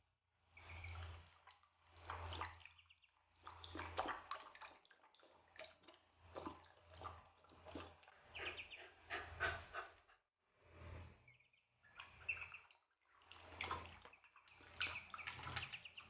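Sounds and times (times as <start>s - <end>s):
light water splashing: 0.4s - 10.0s, 10.8s - 16.0s
puppy lapping water: 3.4s - 10.1s
duckling peeps: 8.3s - 9.8s, 11.4s - 12.7s, 13.7s - 16.0s.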